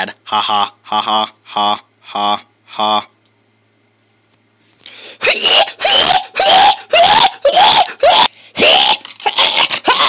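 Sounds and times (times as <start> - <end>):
person screaming: 5.2 - 10.0.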